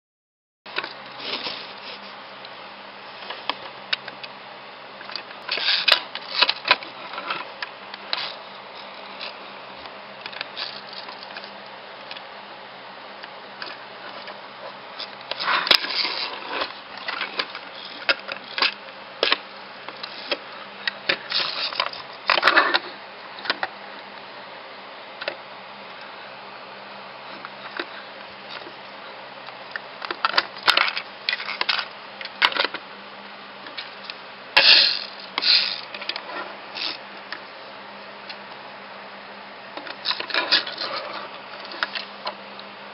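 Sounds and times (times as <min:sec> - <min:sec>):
toy train wheels rattling on wood: 0:10.3 - 0:11.6, 0:21.1 - 0:22.8, 0:34.6 - 0:36.2.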